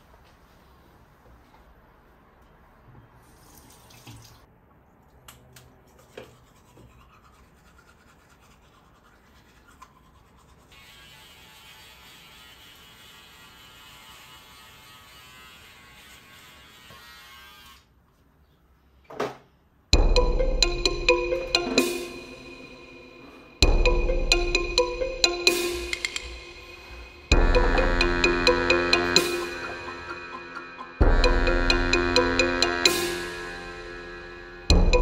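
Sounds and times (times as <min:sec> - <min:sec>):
toothbrush scrubbing teeth: 0:05.9 - 0:10.9.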